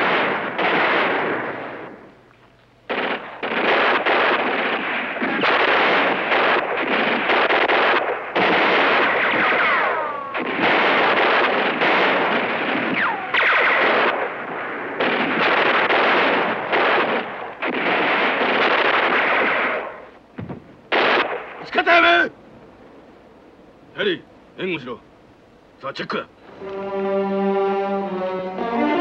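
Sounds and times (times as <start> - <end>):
automatic gunfire bursts: 0.0 - 1.9, 2.9 - 20.0.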